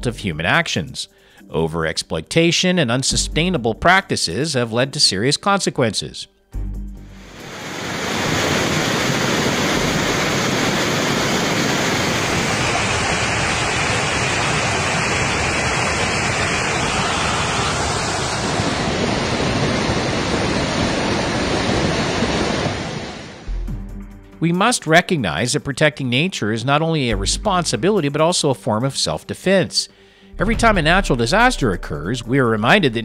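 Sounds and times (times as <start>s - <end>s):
floodwater rushing down street: 7.4s - 22.9s.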